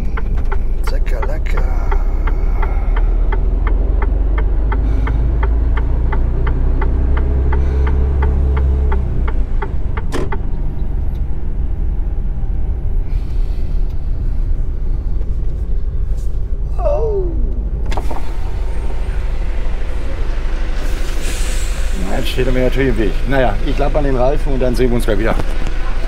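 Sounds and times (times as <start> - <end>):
steady ticking: 0.0 - 11.2
truck engine running: 0.0 - 26.0
short sharp air hiss: 20.8 - 22.0.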